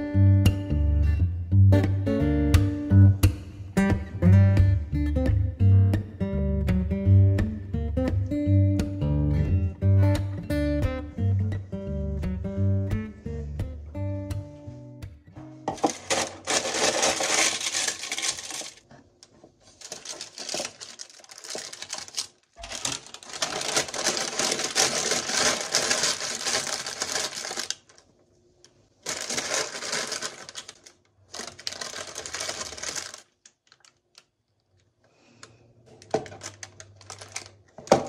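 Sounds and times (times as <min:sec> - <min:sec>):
baking paper crinkling: 0:15.7 - 0:28.1, 0:29.0 - 0:34.3, 0:36.0 - 0:38.0.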